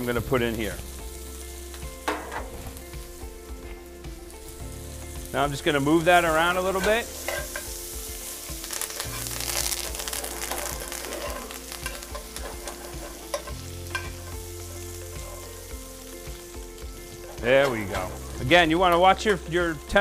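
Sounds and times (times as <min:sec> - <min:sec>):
butter sizzling in a skillet: 0:00.0 - 0:20.0
metal spoon clicking on pan: 0:11.8 - 0:14.2.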